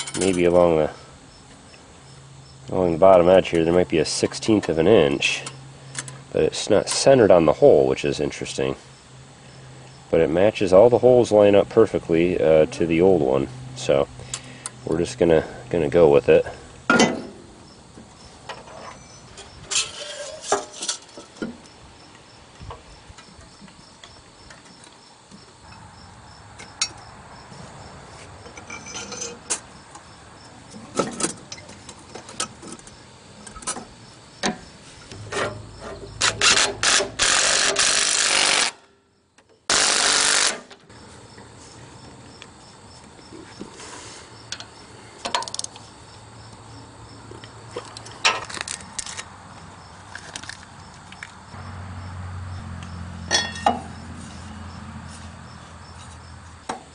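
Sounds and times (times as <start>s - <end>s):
ratchet wrench clicking: 36.2s - 38.8s
metallic knocks: 53.3s - 53.9s.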